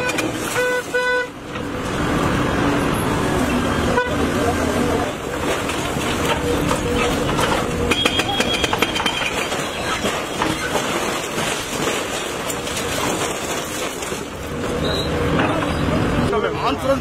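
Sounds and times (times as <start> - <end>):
excavator engine rumble: 0.0 - 17.0
concrete breaking and debris falling: 5.3 - 14.8.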